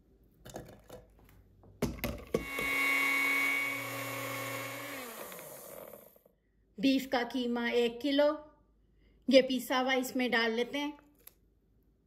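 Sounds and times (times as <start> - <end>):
blender motor whining: 2.4 - 6.3.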